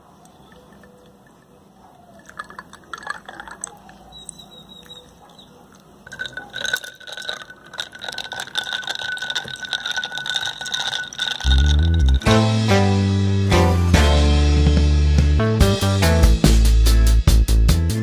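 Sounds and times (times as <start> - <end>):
ice cubes clicking: 0.3 - 12.4
liquid pouring and splashing: 0.4 - 4.4, 5.7 - 12.3.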